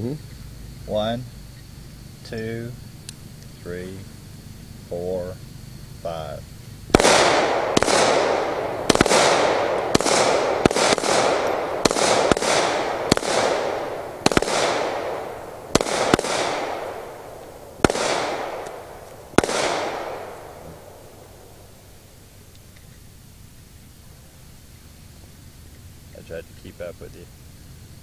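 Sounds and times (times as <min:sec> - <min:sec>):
handgun shots with echo: 0:06.9 - 0:17.0, 0:17.8 - 0:18.8, 0:19.4 - 0:20.4.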